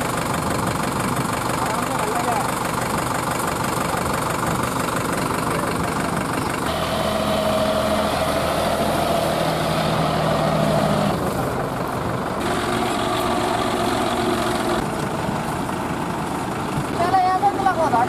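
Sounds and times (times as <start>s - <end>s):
diesel tractor engines running: 0.0s - 18.0s.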